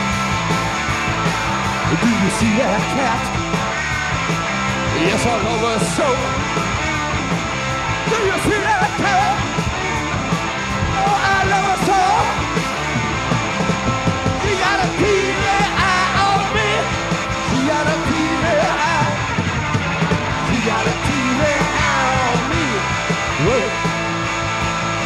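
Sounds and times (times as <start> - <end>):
punk rock band playing: 0.0 - 25.0
man singing: 1.9 - 3.4, 4.9 - 6.5, 8.0 - 9.6, 10.8 - 12.4, 14.4 - 19.4, 20.3 - 24.0.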